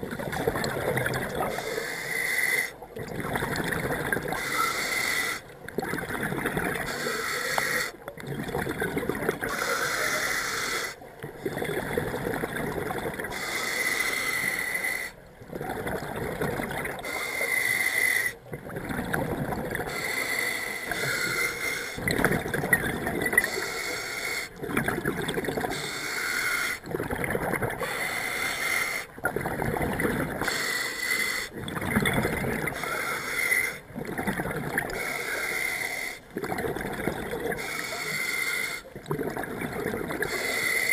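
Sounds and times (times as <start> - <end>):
hissing regulator inhale: 1.5 - 2.7, 4.4 - 5.4, 6.9 - 8.0, 9.5 - 11.0, 13.3 - 15.2, 17.0 - 18.4, 19.9 - 22.0, 23.4 - 24.6, 25.7 - 26.8, 27.8 - 29.2, 30.4 - 31.6, 32.7 - 33.8, 34.9 - 36.3, 37.6 - 38.9, 40.2 - 40.9
bubbling exhale: 6.3 - 40.9.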